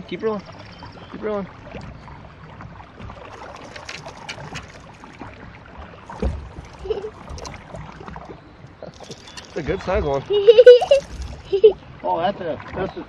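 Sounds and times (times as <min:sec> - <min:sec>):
water lapping at boat hull: 0:00.0 - 0:13.0
dull thump: 0:06.1 - 0:07.5.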